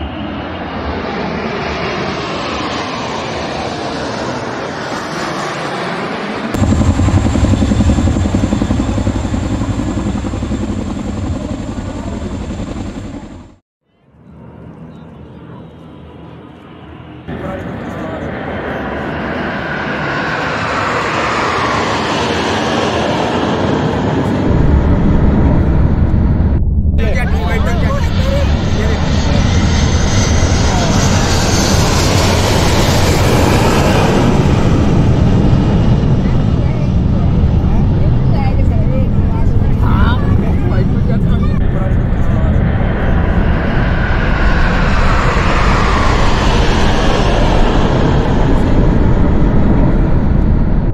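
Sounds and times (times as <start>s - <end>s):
military aircraft roar: 0.0s - 50.9s
deep rumble: 6.6s - 13.6s, 17.5s - 50.9s.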